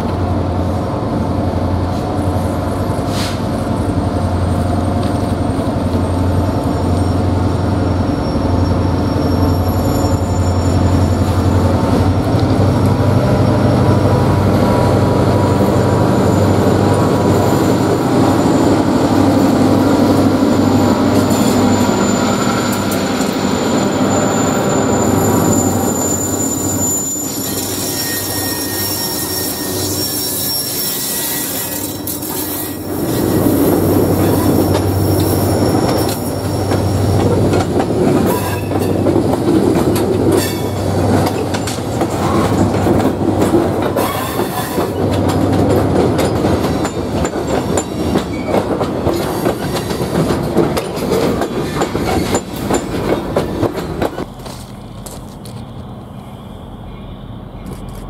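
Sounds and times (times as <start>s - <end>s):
diesel locomotives passing: 0.0s - 58.0s
train wheel squeal: 2.0s - 58.0s.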